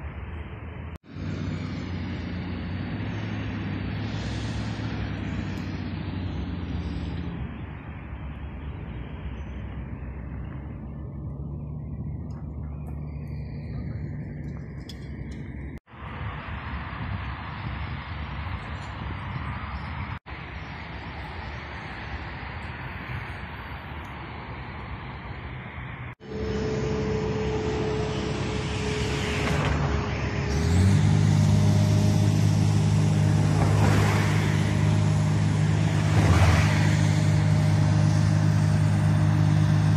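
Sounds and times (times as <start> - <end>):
faint engine hum: 0.0 - 24.2, 25.2 - 39.9
distant vehicle engines rumbling: 0.0 - 39.9
excavator diesel engine running: 26.2 - 39.9.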